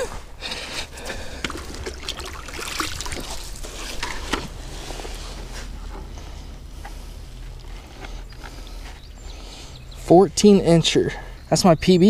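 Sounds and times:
creek water splashing: 0.6s - 9.8s.

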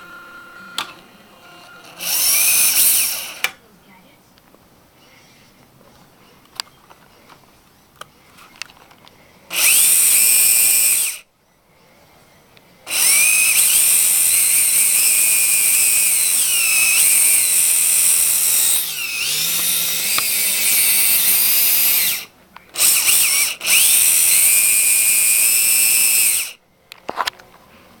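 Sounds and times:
small electric motor whining: 0.0s - 3.5s, 9.5s - 11.2s, 12.9s - 26.6s.

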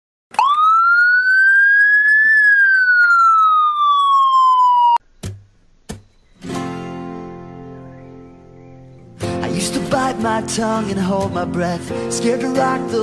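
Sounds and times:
siren wailing: 0.3s - 5.0s
music: 6.4s - 13.0s.

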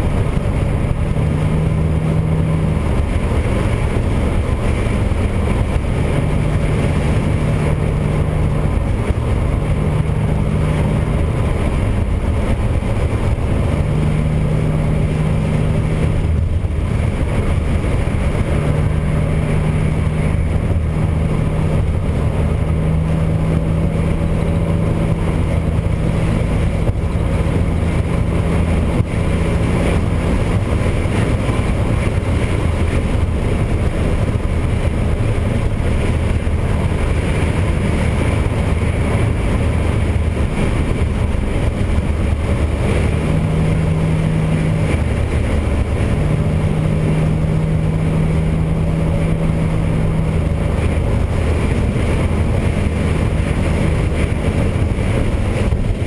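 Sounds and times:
car engine cruising: 0.0s - 56.0s
road noise: 0.0s - 56.0s.

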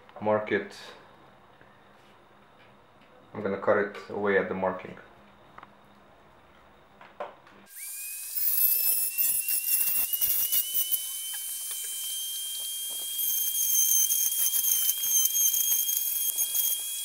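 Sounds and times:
rotary tool whining: 7.7s - 17.0s.

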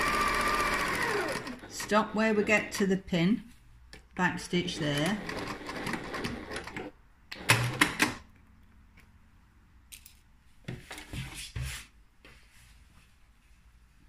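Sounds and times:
sewing machine stitching: 0.0s - 3.0s, 4.6s - 8.2s.

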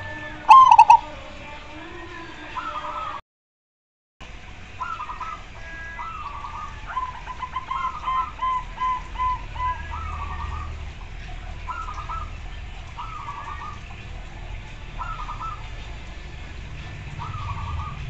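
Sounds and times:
doves cooing: 0.0s - 1.2s, 4.8s - 14.0s, 14.9s - 16.2s, 17.0s - 18.0s.

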